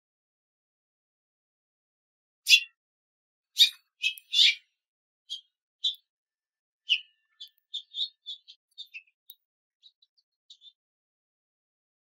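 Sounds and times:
finch chirping: 2.5s - 2.8s, 3.6s - 4.7s, 5.3s - 6.1s, 6.9s - 10.8s.

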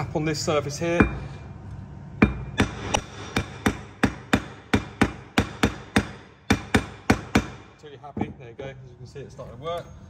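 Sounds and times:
mallet tapping on metal hub: 2.2s - 7.6s.

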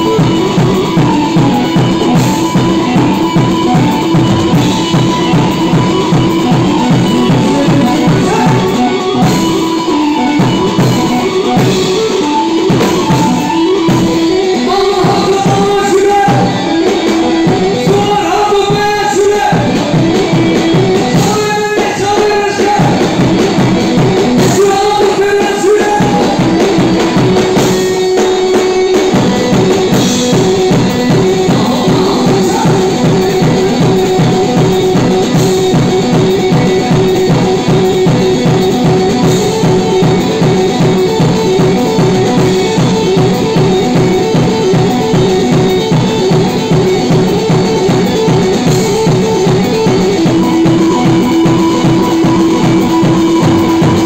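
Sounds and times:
drum kit beat: 0.0s - 54.0s
keyboard melody: 0.0s - 54.0s.

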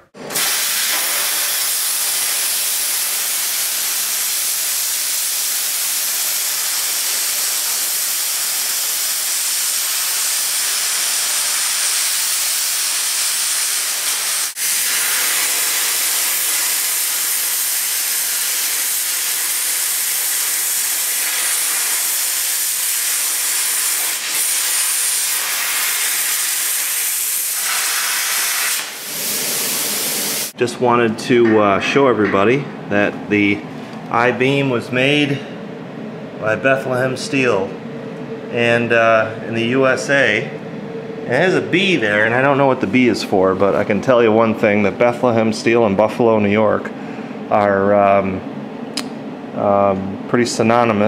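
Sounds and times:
plasma cutter hissing: 0.3s - 30.6s.

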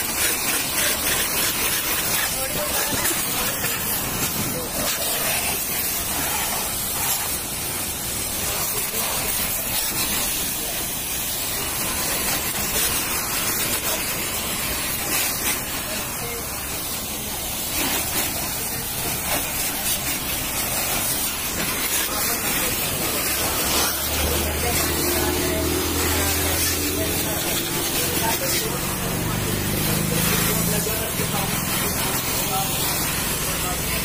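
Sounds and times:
pressure washer spraying water: 0.0s - 34.0s.

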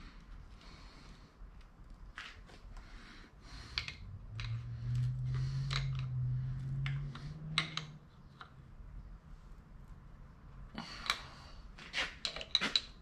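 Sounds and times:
low steady hum: 0.0s - 11.9s
small metal clicks and clinks: 3.8s - 6.2s, 6.8s - 8.0s.

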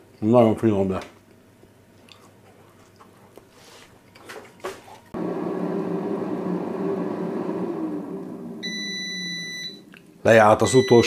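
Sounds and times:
air fryer fan hum: 5.2s - 11.0s.

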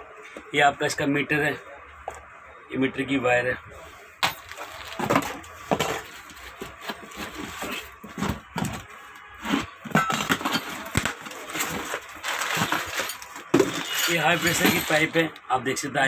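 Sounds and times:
cardboard boxes knocking and scraping: 4.2s - 13.9s.

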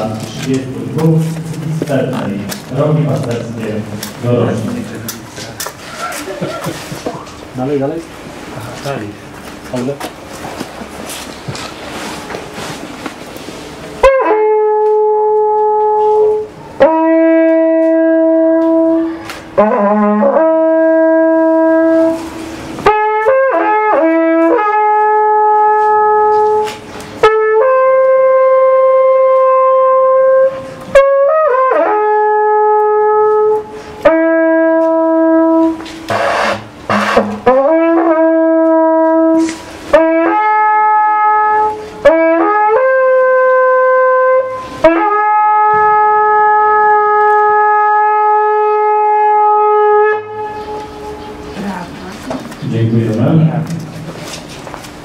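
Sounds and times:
wooden horn playing held notes: 13.6s - 51.7s.

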